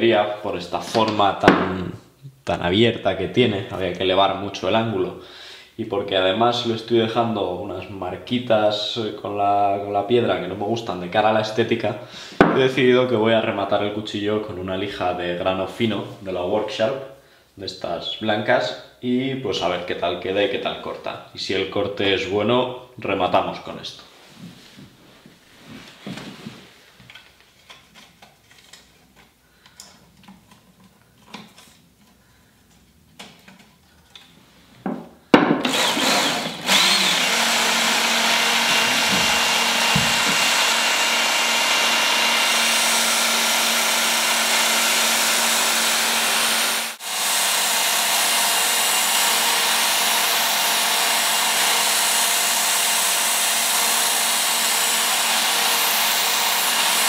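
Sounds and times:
electric belt sharpener whirring: 35.6s - 57.0s.

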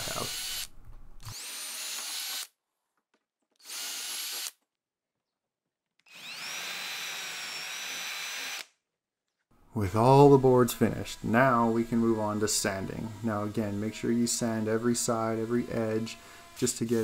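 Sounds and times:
cordless drill boring into wood: 0.0s - 0.7s, 1.3s - 2.5s, 3.6s - 4.6s, 6.1s - 8.7s, 10.3s - 17.0s.

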